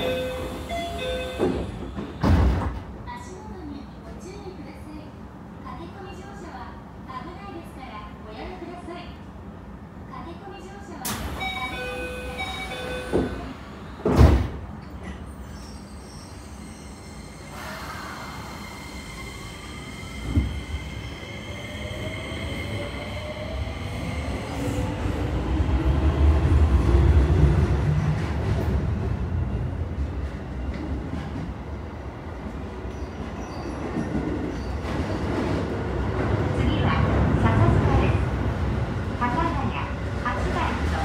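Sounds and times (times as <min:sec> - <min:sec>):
train wheels rumbling on rails: 0:00.0 - 0:03.3, 0:17.5 - 0:41.0.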